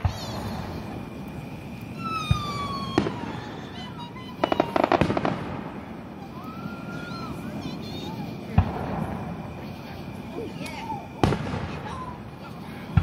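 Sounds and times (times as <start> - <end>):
firework whistle falling: 0.0 - 12.3
firework bangs: 0.0 - 13.0
crackling pops: 4.4 - 5.8.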